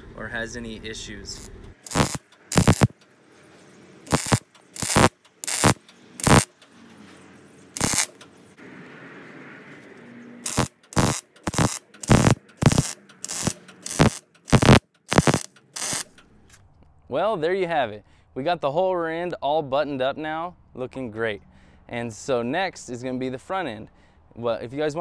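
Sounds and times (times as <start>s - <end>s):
welder arc bursts: 1.3s - 3.0s, 4.1s - 6.5s, 7.8s - 8.2s, 10.4s - 16.1s.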